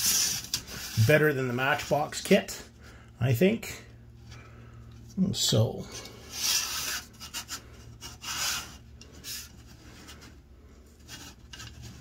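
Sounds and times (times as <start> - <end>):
plastic sprues scraping and knocking: 6.3 - 12.0.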